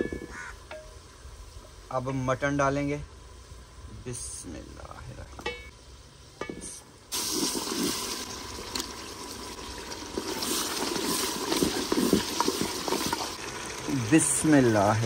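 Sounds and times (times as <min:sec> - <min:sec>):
meat sizzling in a pot: 0:07.1 - 0:15.0.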